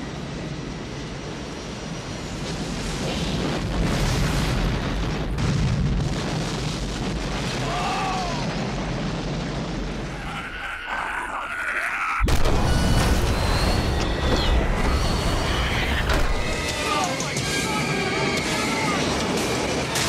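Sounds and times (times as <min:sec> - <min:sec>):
deep rumbling explosion: 0:02.4 - 0:16.9.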